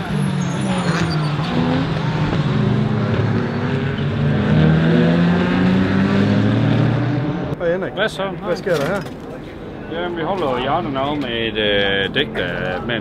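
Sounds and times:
race cars driving past: 0.0 - 7.6.

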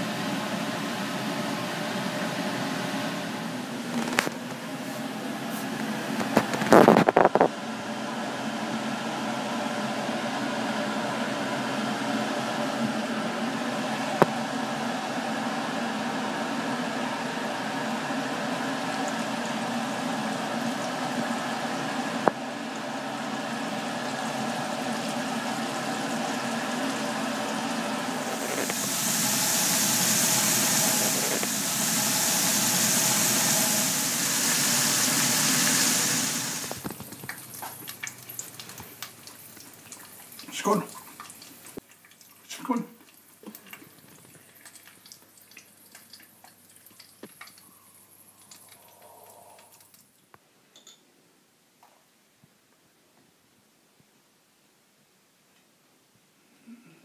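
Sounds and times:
steady hum: 0.0 - 36.9
patties frying in oil: 5.7 - 9.6, 11.2 - 50.1
high close sizzle: 11.3 - 50.3.

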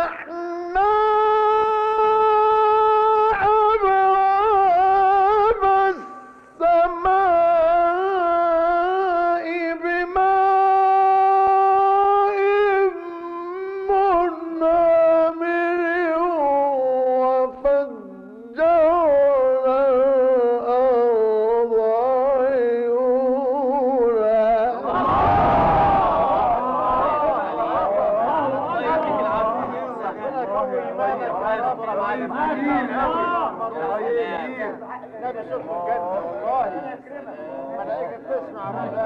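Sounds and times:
man chanting melodically: 0.0 - 25.1
crowd calling out: 24.8 - 29.1.

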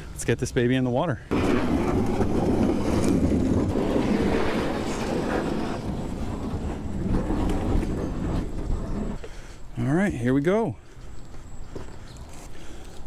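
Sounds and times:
plastic hull scraping on concrete: 1.3 - 9.2.

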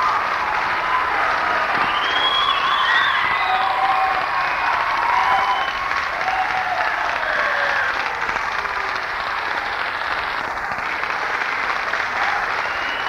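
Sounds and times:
people shouting: 0.0 - 9.0
audience applauding: 0.0 - 13.0.

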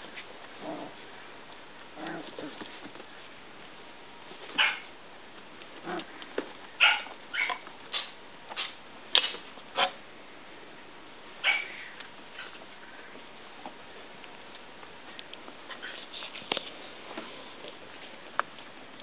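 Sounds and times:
puppies yipping: 4.6 - 4.9, 6.8 - 8.1, 11.4 - 12.6.

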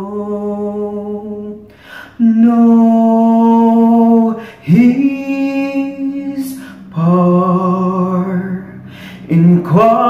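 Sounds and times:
man singing solo: 0.0 - 10.0
singer breathing: 1.7 - 2.2, 4.4 - 4.7, 6.5 - 6.9, 8.7 - 9.3.

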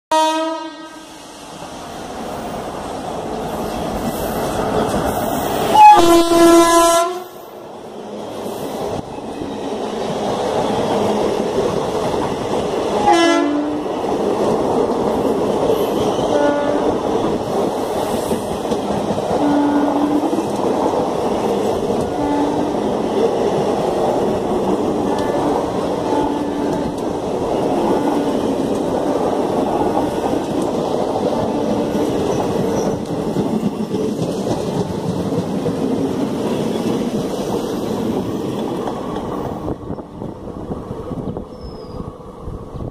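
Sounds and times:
electric locomotive horn: 0.1 - 1.2, 5.7 - 7.4, 13.0 - 13.8, 16.2 - 17.0, 19.4 - 20.3, 22.0 - 22.8, 25.0 - 27.0
train wheels rolling on rail: 0.4 - 42.9.

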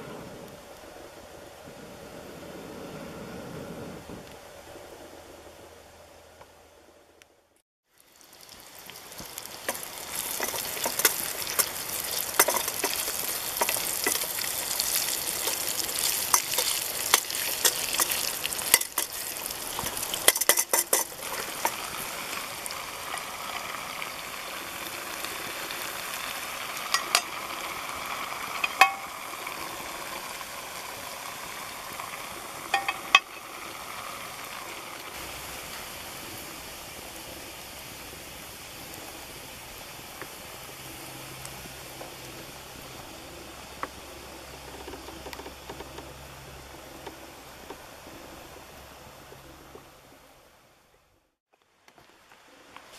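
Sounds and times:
meat sizzling in pots: 7.9 - 49.6.

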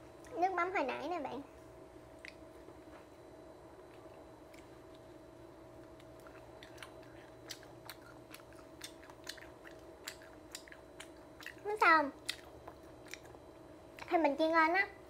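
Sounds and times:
person chewing crunchy food: 5.8 - 14.1.

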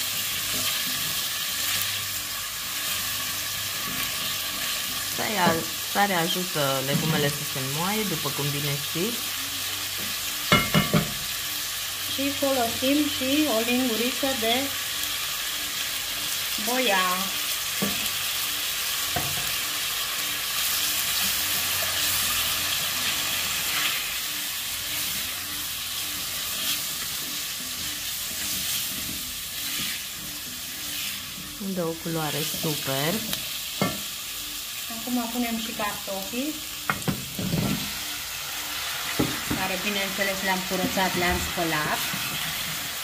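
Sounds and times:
spatula stirring: 0.0 - 7.4, 20.7 - 33.9
vegetables sizzling in oil: 0.0 - 43.0.

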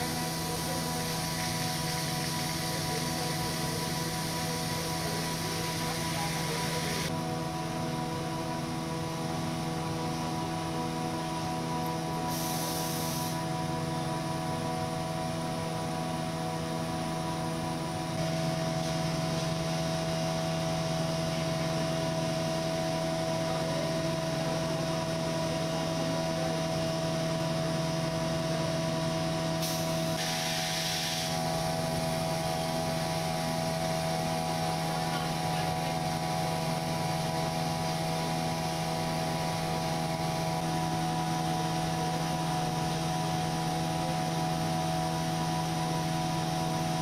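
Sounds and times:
steady machine hum: 0.0 - 47.0
short bursts of hiss: 12.3 - 13.4, 29.6 - 31.4.

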